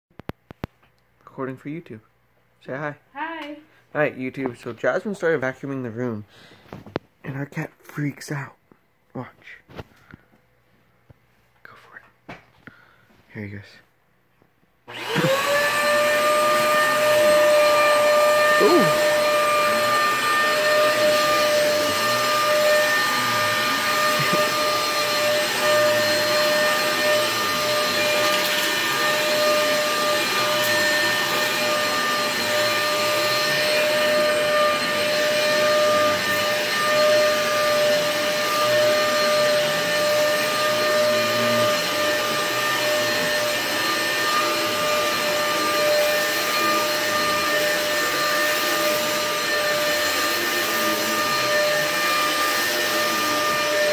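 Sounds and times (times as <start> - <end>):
vacuum cleaner running: 14.8 - 53.9.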